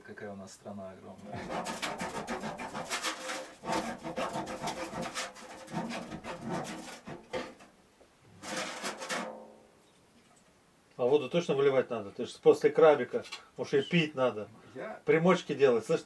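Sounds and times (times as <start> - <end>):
can opener scraping: 1.2 - 7.7, 8.4 - 9.3.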